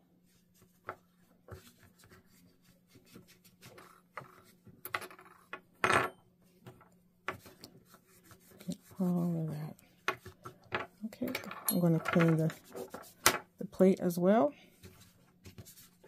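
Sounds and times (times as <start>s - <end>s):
small metal parts clinking: 11.1s - 12.5s.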